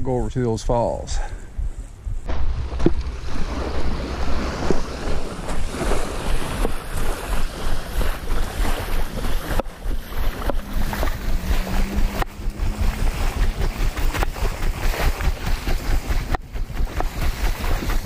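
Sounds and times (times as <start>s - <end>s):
wind buffeting microphone: 0.0s - 18.0s
small waves washing ashore: 2.4s - 18.0s
footsteps crunching on gravel: 2.5s - 16.3s.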